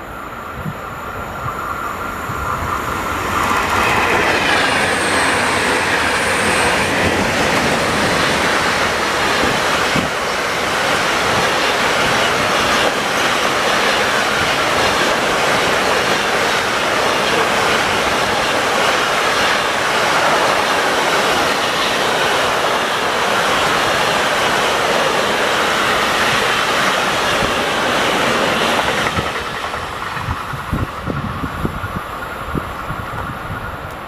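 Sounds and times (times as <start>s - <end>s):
freight train rolling past: 0.0s - 34.0s
high wheel squeal: 1.5s - 9.6s
wheels clicking over rail joints: 2.5s - 34.0s.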